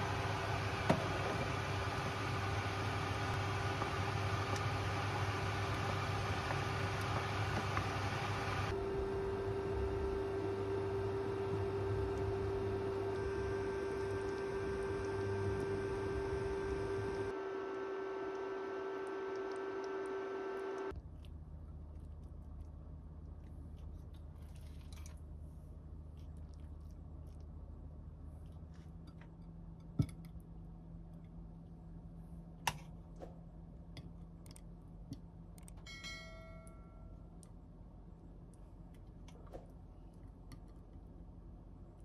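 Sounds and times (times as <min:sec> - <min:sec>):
low hum: 0:00.0 - 0:32.6.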